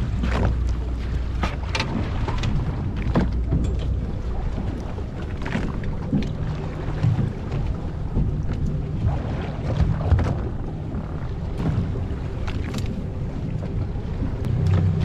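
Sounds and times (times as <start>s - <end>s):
wind rumbling on microphone: 0.0s - 15.0s
clicks and knocks of fish handling: 0.2s - 4.1s, 12.4s - 13.0s.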